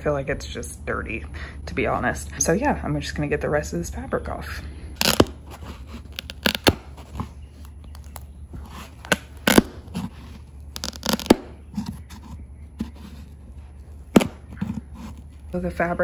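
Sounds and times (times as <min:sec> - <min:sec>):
staples snapping out of wood: 0:05.0 - 0:05.4, 0:06.2 - 0:06.9, 0:10.8 - 0:11.6
fabric tearing: 0:05.0 - 0:07.0, 0:08.7 - 0:11.6.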